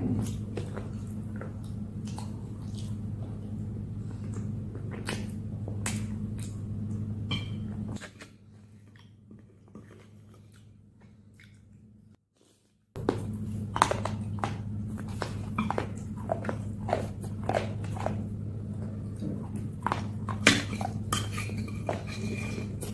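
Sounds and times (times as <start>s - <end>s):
steady low hum: 0.0s - 12.2s, 13.0s - 22.9s
chewing clicks and smacks: 0.2s - 3.5s, 9.9s - 11.8s, 13.7s - 21.0s.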